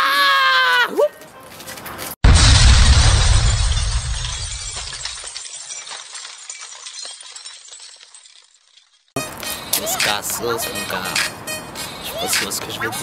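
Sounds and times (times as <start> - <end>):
glass shards tinkling: 3.2 - 10.0.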